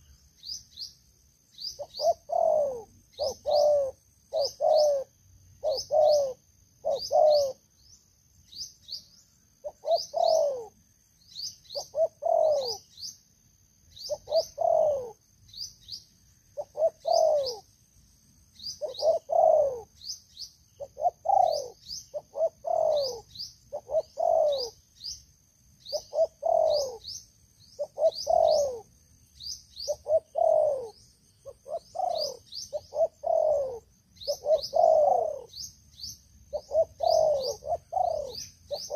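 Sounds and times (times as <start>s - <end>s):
doves cooing: 1.8s - 7.7s, 9.6s - 10.8s, 11.8s - 12.8s, 14.1s - 15.2s, 16.6s - 17.7s, 18.8s - 20.0s, 20.8s - 24.8s, 25.9s - 27.2s, 27.8s - 28.9s, 29.8s - 35.7s, 36.5s - 38.9s.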